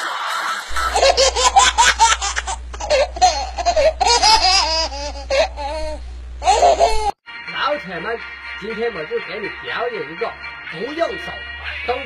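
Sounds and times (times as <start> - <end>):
high-pitched laughter: 0.0 - 5.8.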